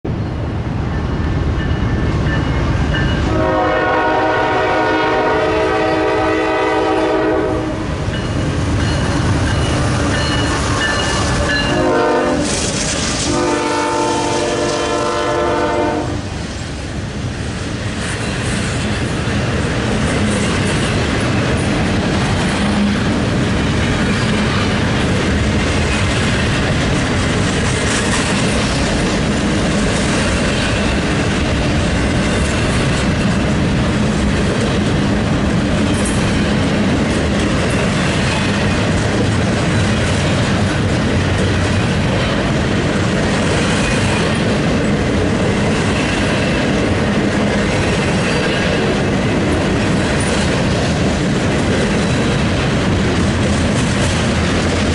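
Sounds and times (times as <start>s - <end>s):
freight train rumbling past: 0.0s - 54.9s
locomotive air horn: 3.3s - 7.9s, 11.4s - 12.6s, 13.2s - 16.2s.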